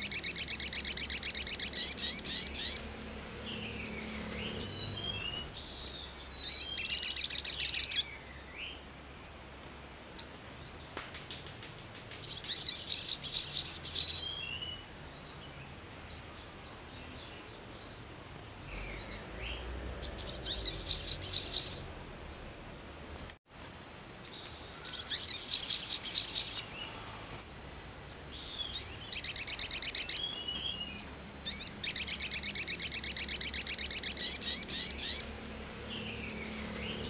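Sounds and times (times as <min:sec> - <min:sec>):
bird chirps: 0:00.0 - 0:08.8, 0:09.8 - 0:22.6, 0:24.2 - 0:27.0, 0:27.8 - 0:37.0
bird singing rapid trills: 0:00.0 - 0:22.7, 0:24.2 - 0:37.0.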